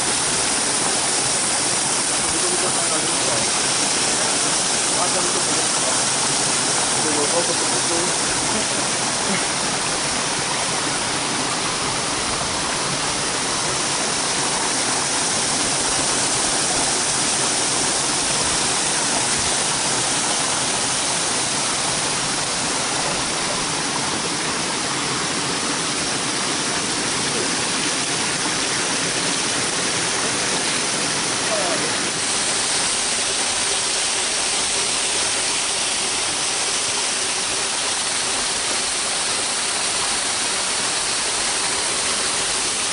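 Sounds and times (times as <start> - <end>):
stream rushing over rocks: 0.0 - 42.9.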